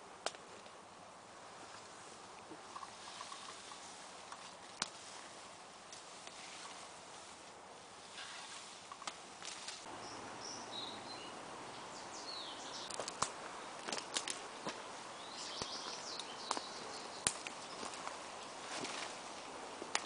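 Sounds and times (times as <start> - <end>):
leaves brushing: 0.0 - 20.0
twigs snapping: 0.2 - 0.8, 2.6 - 5.0, 12.8 - 20.0
footsteps through undergrowth: 1.5 - 10.0, 12.4 - 20.0
faint bird chirps: 9.9 - 13.0, 15.1 - 18.0.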